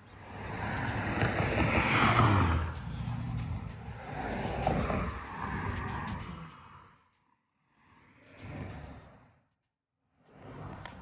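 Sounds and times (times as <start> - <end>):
motor vehicle passing: 0.0 - 7.1
traffic going by: 0.0 - 9.4.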